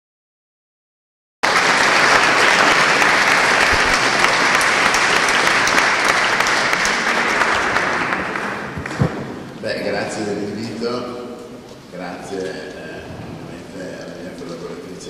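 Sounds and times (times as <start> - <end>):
audience applauding: 1.4 - 9.6.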